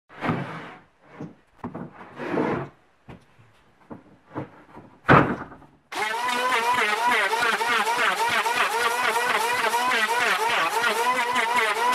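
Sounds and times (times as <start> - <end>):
wood scraping on wood: 0.1 - 2.8
wooden board thump: 3.9 - 5.8.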